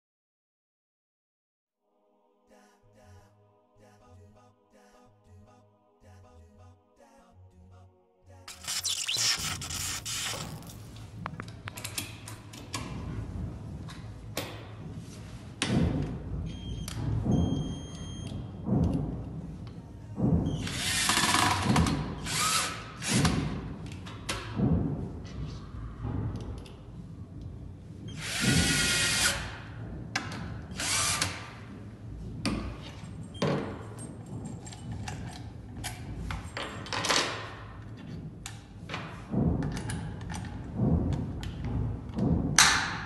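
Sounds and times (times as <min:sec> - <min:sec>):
cordless drill driving screws: 0:08.5 - 0:10.8.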